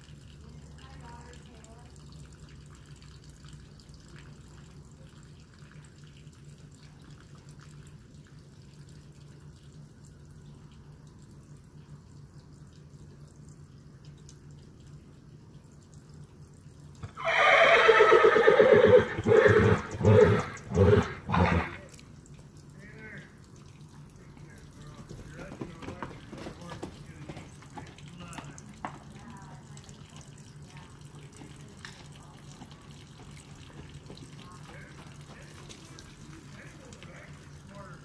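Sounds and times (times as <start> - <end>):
horse whinnying loudly: 17.0 - 21.9.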